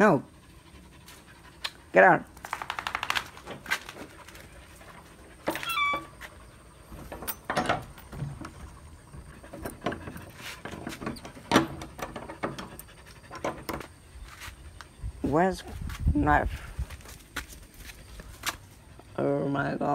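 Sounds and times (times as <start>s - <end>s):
footsteps: 2.4s - 11.5s, 13.0s - 18.8s
dog whining: 5.4s - 6.5s.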